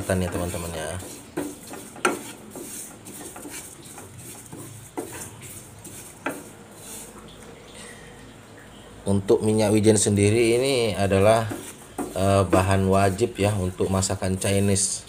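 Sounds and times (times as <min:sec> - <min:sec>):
seeds scraped around a pan: 0:00.0 - 0:07.2, 0:11.1 - 0:15.0
spatula knocking against pan: 0:00.1 - 0:06.5, 0:11.2 - 0:12.8.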